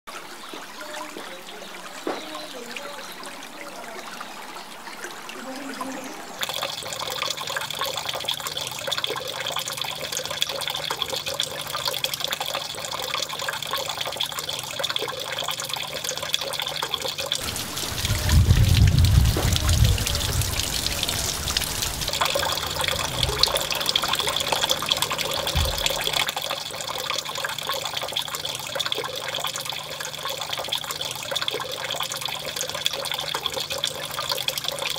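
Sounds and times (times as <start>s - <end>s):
water running from a spout: 0.1s - 34.9s
low thumps: 17.5s - 24.0s, 25.3s - 26.2s
low rumble: 17.5s - 24.1s.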